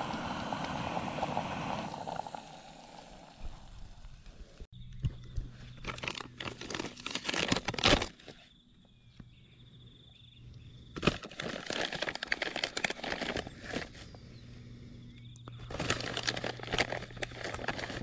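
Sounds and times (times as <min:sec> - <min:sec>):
crinkly rustling: 0:05.8 - 0:08.4, 0:11.0 - 0:14.1, 0:15.6 - 0:18.0
faint steady hum: 0:12.1 - 0:18.0.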